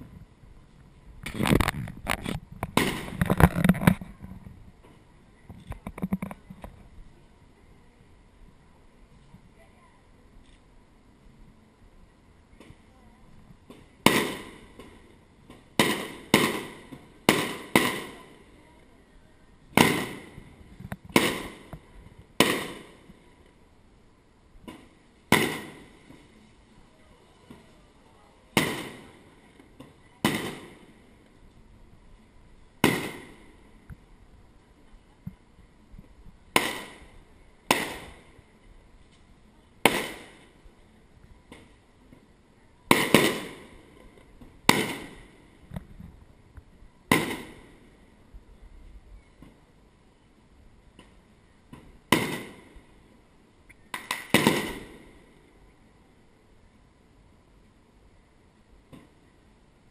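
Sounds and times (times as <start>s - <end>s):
fireworks shells bursting: 1.2s - 4.1s, 13.7s - 18.5s, 19.7s - 23.2s, 24.7s - 26.3s, 28.5s - 31.1s, 32.8s - 33.7s, 36.5s - 38.4s, 39.8s - 40.6s, 42.9s - 45.8s, 47.1s - 47.9s, 52.1s - 52.8s, 53.9s - 55.3s.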